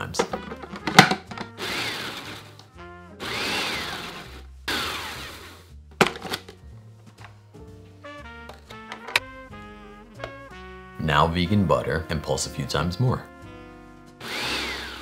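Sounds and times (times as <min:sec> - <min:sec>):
background music: 0:00.0 - 0:15.0
food processor pulsing: 0:01.0 - 0:02.6, 0:03.2 - 0:05.6, 0:14.2 - 0:15.0.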